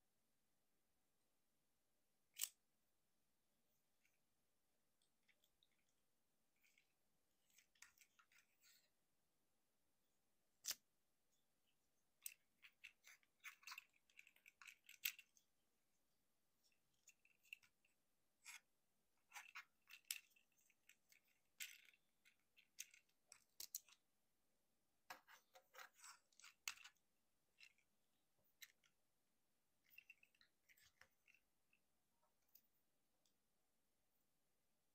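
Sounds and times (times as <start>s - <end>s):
plastic toy parts clicking: 2.3s - 2.6s, 12.1s - 15.5s, 16.9s - 24.0s, 25.1s - 27.9s.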